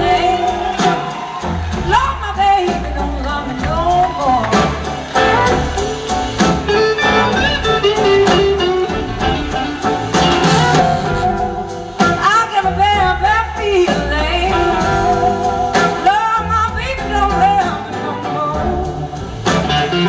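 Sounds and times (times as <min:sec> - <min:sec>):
horn section: 0:00.0 - 0:13.0, 0:14.1 - 0:20.0
drums: 0:00.0 - 0:20.0
electric guitars: 0:02.7 - 0:12.2, 0:17.0 - 0:20.0
person singing: 0:12.2 - 0:20.0.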